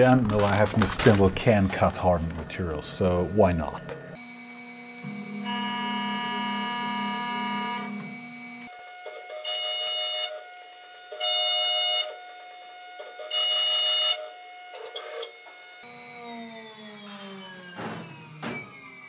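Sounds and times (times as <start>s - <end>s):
spindle whine: 0.0s - 9.6s, 14.2s - 19.0s
high-pitched ringing cutting: 2.9s - 19.0s.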